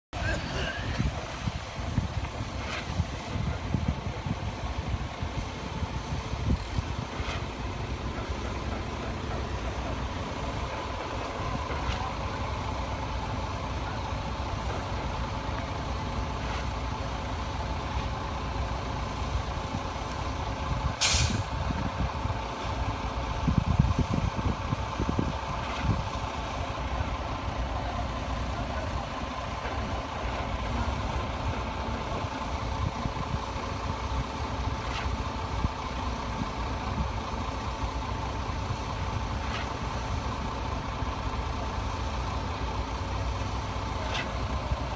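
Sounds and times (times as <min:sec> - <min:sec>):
construction machinery diesel engines: 0:00.0 - 0:44.9
air hiss: 0:21.0 - 0:21.6.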